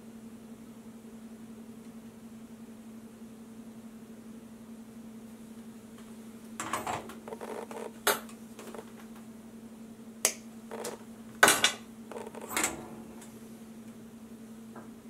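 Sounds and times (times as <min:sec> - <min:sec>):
steady low hum: 0:00.0 - 0:15.0
hand tools clicking and snipping wire: 0:10.3 - 0:12.8.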